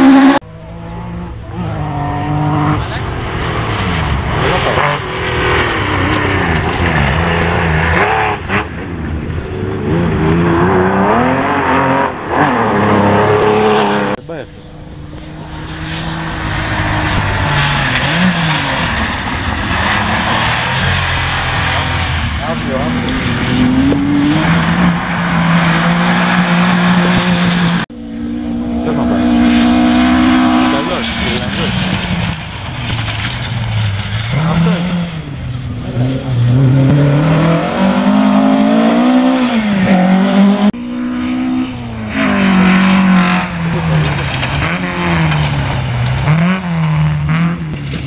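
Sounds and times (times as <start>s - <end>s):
rally car engine revving hard: 0.0s - 14.2s, 15.3s - 33.0s, 34.2s - 48.0s
engine at higher pitch: 25.7s - 31.8s.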